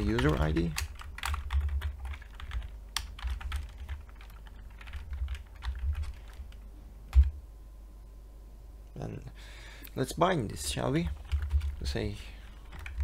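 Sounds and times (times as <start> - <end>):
typing on a computer keyboard: 0.0 - 7.3, 11.0 - 12.0, 12.6 - 13.0.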